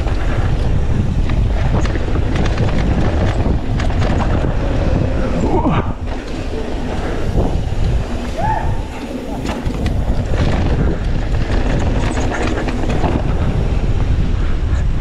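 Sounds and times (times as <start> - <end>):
bike rattling over rough ground: 0.0 - 15.0
wind buffeting microphone: 0.0 - 15.0.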